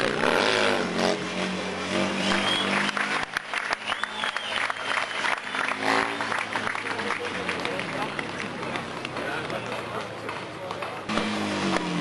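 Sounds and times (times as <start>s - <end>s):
spectators applauding: 2.2s - 11.1s
motorcycle engine running: 11.0s - 12.0s.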